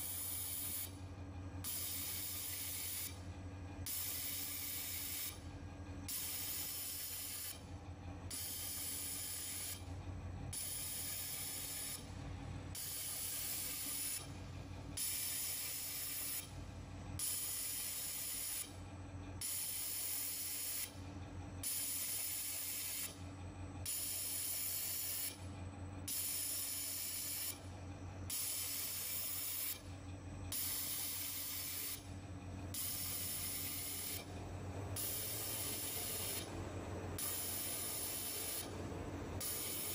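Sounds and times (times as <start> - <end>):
low machine hum: 0.0 - 17.2, 27.5 - 39.9
laser welding hiss: 1.7 - 3.2, 6.1 - 7.6, 12.8 - 14.2, 15.0 - 16.5, 21.7 - 23.1, 23.9 - 25.3, 28.4 - 29.8, 30.6 - 32.0, 32.8 - 34.2, 35.0 - 36.5, 37.2 - 38.7, 39.4 - 39.9.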